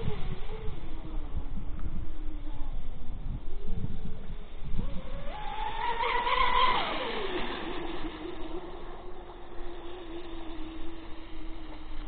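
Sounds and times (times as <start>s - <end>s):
electric motors whining: 0.0s - 12.0s.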